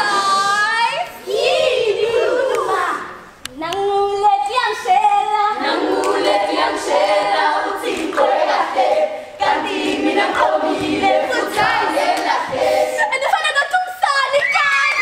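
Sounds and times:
women singing in chorus: 0:00.0 - 0:03.2, 0:04.0 - 0:13.2.

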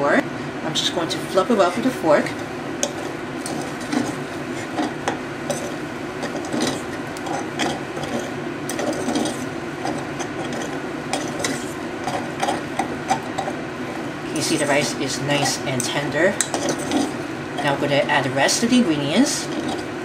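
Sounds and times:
fork scraping metal saucepan: 0:02.8 - 0:13.6, 0:16.4 - 0:17.2.

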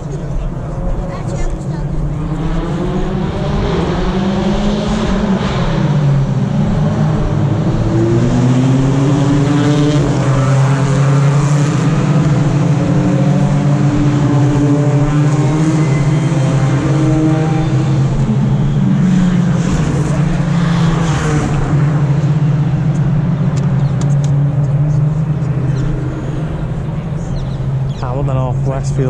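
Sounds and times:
racing car engines: 0:00.0 - 0:29.0.

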